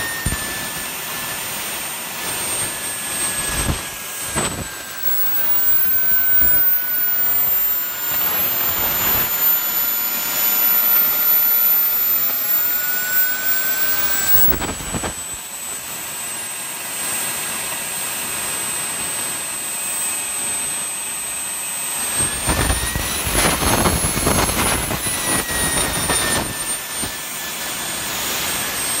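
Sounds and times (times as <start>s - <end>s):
jet turbine whine: 0.0s - 29.0s
rushing exhaust: 0.8s - 15.4s.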